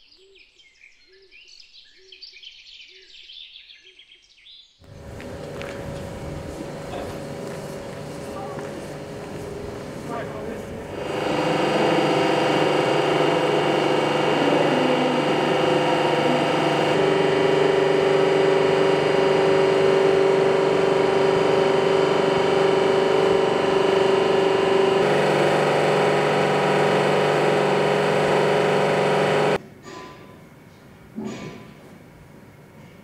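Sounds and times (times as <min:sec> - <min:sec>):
electric motor hum and whine: 0:04.8 - 0:29.6.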